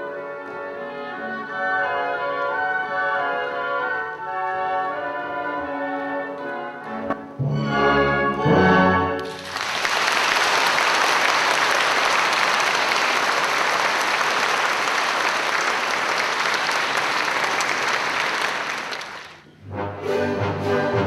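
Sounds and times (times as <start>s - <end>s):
audience applauding: 9.2s - 19.4s.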